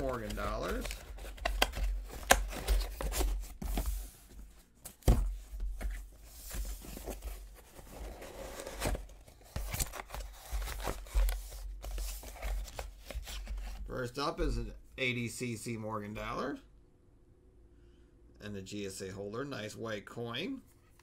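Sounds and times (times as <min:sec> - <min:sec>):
cardboard box rustling and scraping: 0:00.0 - 0:13.8.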